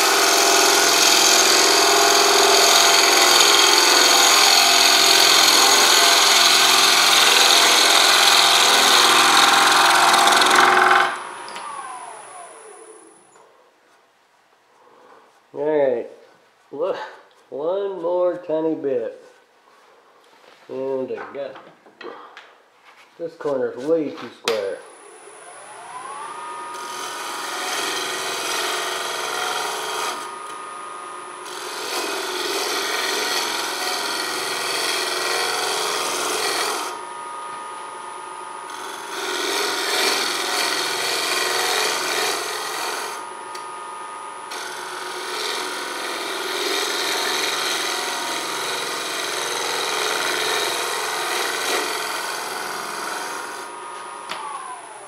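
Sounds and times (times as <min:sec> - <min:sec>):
gouge scraping wood on lathe: 0:00.0 - 0:11.2, 0:26.8 - 0:30.3, 0:31.4 - 0:37.0, 0:38.7 - 0:43.2, 0:44.5 - 0:53.7
lathe motor whining: 0:00.0 - 0:13.2, 0:24.9 - 0:55.0.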